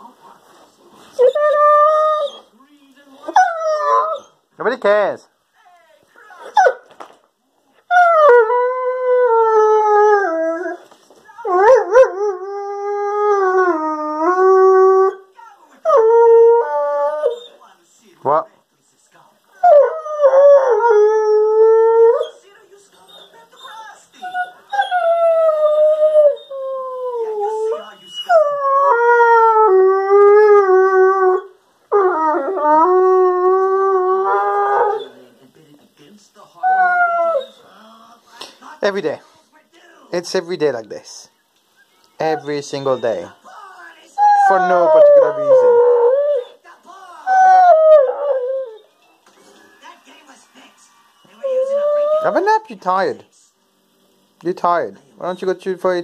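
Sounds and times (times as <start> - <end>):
dog howling: 1.2 - 2.5, 3.3 - 4.4, 7.9 - 10.8, 11.4 - 15.2, 15.8 - 17.6, 19.6 - 22.4, 23.6 - 35.4, 36.6 - 37.7, 44.2 - 46.6, 47.2 - 49.0, 51.3 - 52.5.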